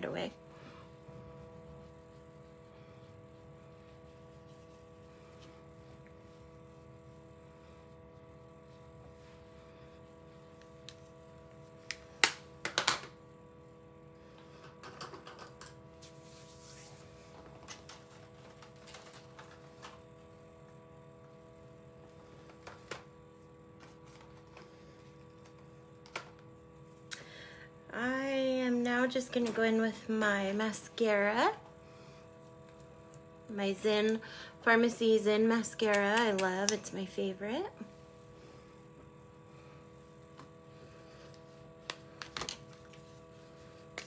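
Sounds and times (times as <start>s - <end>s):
faint electrical hum: 0.0s - 44.0s
soft rustle: 16.0s - 17.6s.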